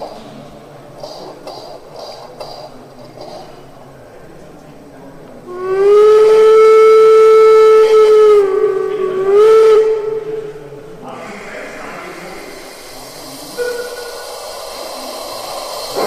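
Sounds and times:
steam whistle blast: 5.5s - 10.9s, 12.3s - 16.0s.

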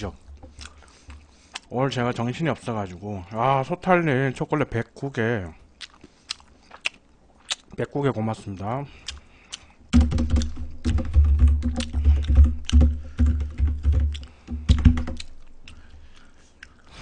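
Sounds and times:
fast typing on keyboard: 10.0s - 15.2s.

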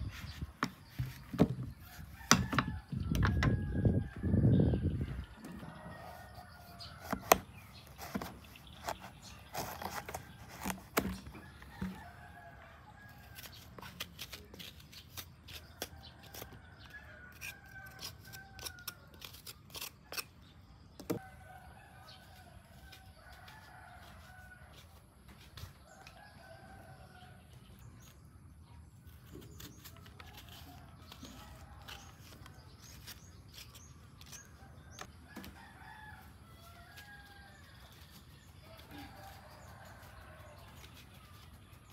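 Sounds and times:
rooster crowing: 5.6s - 7.1s, 35.3s - 37.8s.

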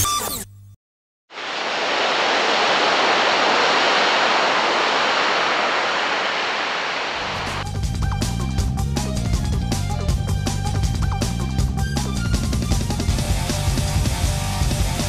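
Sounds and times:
ocean surf breaking: 1.3s - 7.6s.

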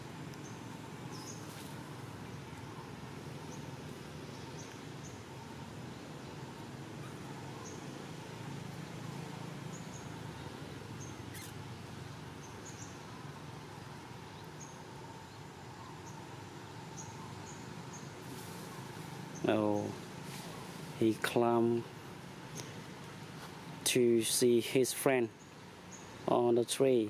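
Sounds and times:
steady low outdoor background: 0.0s - 27.0s.

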